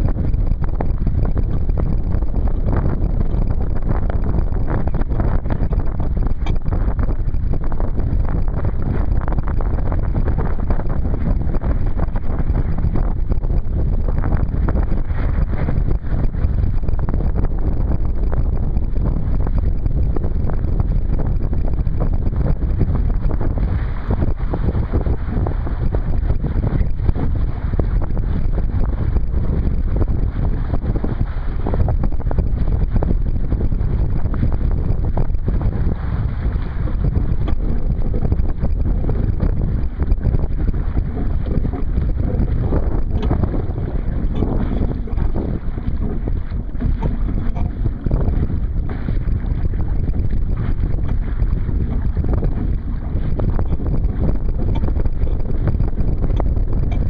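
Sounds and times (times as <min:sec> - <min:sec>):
water splashing along a hull: 0:00.0 - 0:57.0
wind buffeting microphone: 0:00.0 - 0:57.0.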